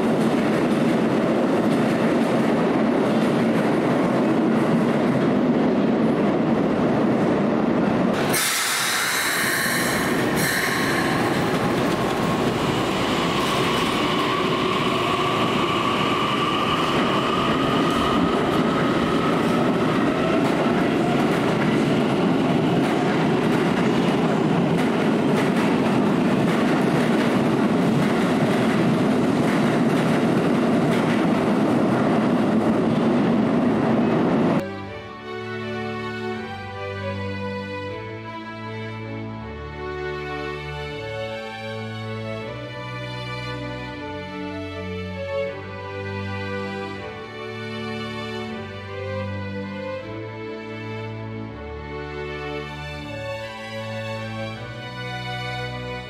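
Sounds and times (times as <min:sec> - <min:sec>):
train wheel-on-rail noise: 0:00.0 - 0:34.7, 0:52.6 - 0:56.0
train whine pulling out: 0:06.5 - 0:26.4.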